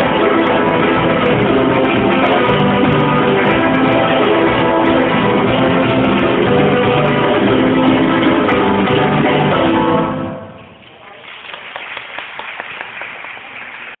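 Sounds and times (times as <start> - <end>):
flamenco acoustic guitar: 0.0 - 10.4.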